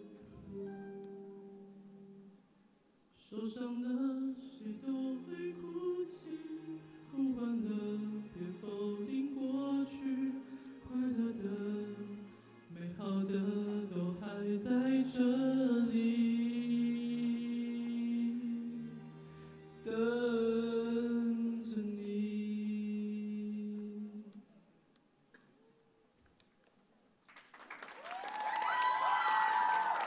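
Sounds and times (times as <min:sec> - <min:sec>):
young man singing into microphone: 0:03.1 - 0:19.0, 0:19.8 - 0:24.5.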